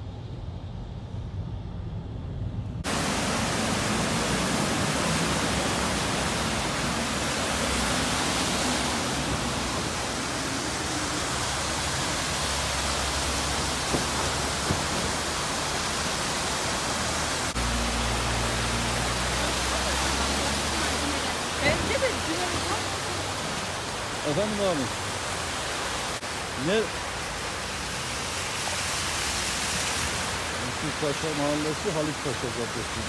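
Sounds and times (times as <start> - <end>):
low rumble: 0.0 - 5.5
cars splashing through water: 2.8 - 33.0
heavy rain and floodwater rushing: 2.8 - 33.0.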